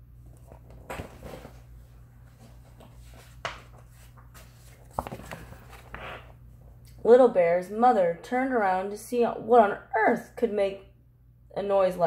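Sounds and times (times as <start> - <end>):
steady low hum: 0.0 - 12.0
paper pages rustling: 0.3 - 6.4.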